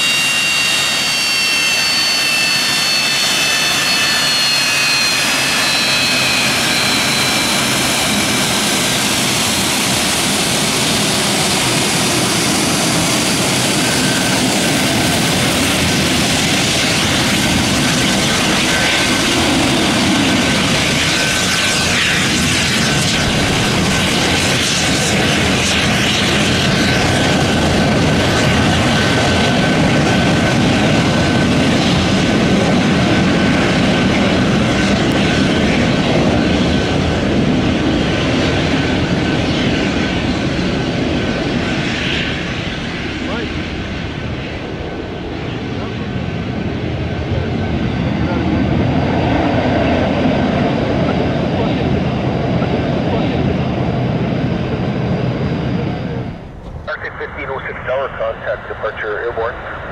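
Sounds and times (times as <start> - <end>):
jet engines at taxi power: 0.0 - 59.9.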